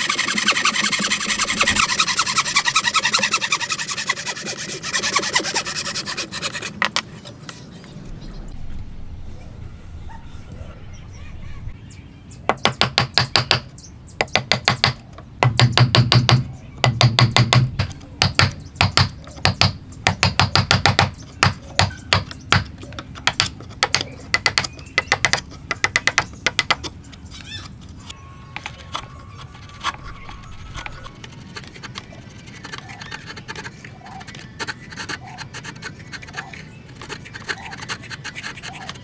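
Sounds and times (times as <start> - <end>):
chisel tapping into wood: 14.2 - 26.9.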